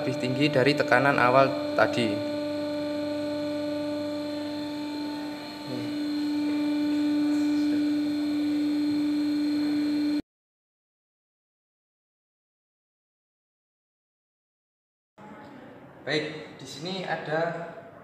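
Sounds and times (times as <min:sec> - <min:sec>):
hydraulic pump motor humming: 0:00.0 - 0:10.2.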